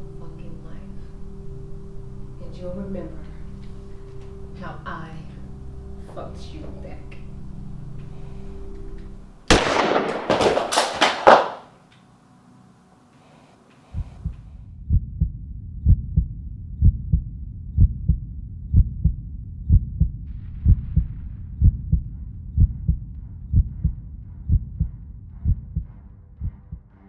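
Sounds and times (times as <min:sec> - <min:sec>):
low hum: 0:00.0 - 0:10.3, 0:13.9 - 0:27.0
heartbeat thumps: 0:14.0 - 0:27.0.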